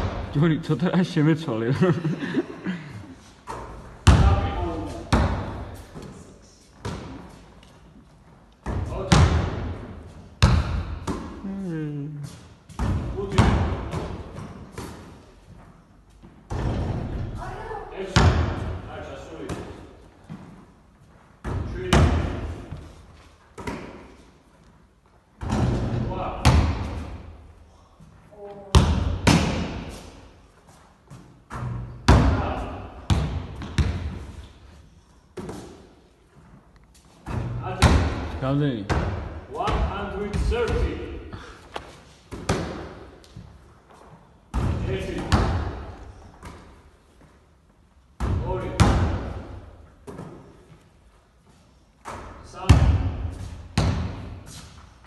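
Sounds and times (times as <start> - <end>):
basketball thudding in a hall: 0.0 - 0.4, 3.4 - 7.5, 8.6 - 11.4, 12.4 - 15.3, 16.2 - 20.6, 21.4 - 24.2, 25.4 - 27.6, 28.4 - 30.1, 31.1 - 34.6, 37.2 - 43.5, 44.5 - 47.0, 48.2 - 50.9, 52.0 - 54.8
basketball bouncing on hard floor: 10.4 - 11.4, 33.1 - 34.2.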